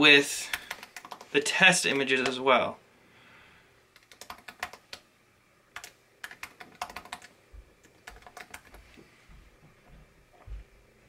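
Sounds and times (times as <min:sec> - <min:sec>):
computer keyboard typing: 0:00.5 - 0:01.3, 0:04.0 - 0:05.0, 0:05.8 - 0:08.8.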